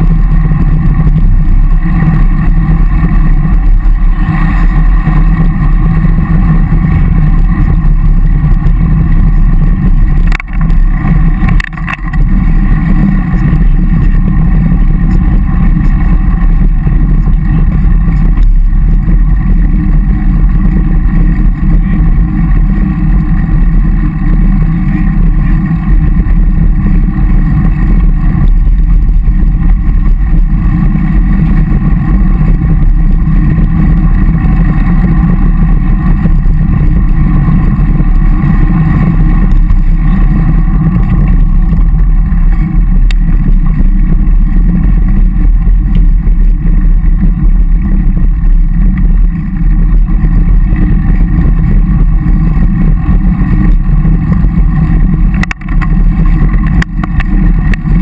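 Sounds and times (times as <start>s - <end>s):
road noise: 0.0s - 58.0s
wind rumble on microphone: 0.0s - 58.0s.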